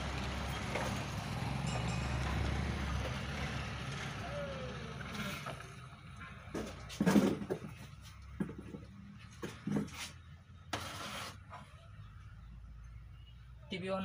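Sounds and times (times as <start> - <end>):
low engine rumble: 0.0 - 10.7.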